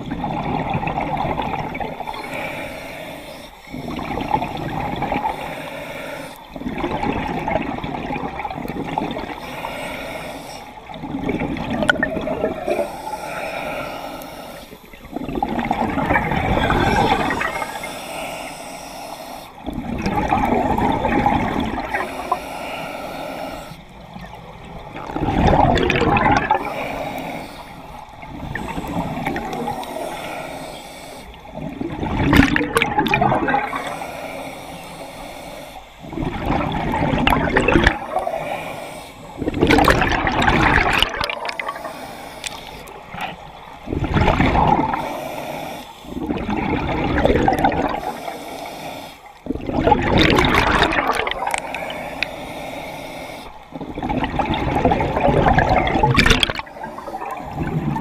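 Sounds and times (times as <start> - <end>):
diver exhaling bubbles underwater: 10.9 - 12.8, 15.1 - 17.8, 19.6 - 22.3, 24.9 - 27.3, 31.5 - 33.8, 36.1 - 38.2, 39.4 - 41.9, 42.5 - 45.0, 46.2 - 48.2, 49.4 - 51.8, 53.8 - 58.0.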